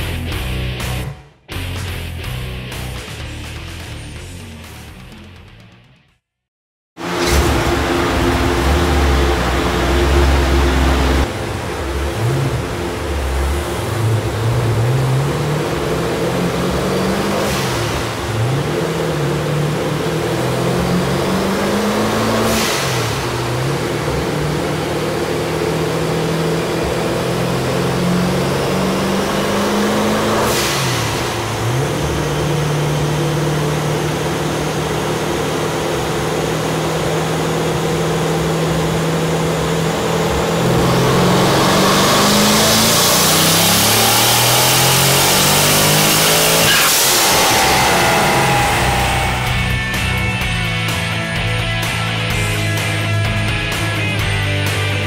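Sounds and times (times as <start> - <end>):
turbo whine: 7.0 - 15.9, 42.8 - 50.5
car engine revving: 7.0 - 53.9.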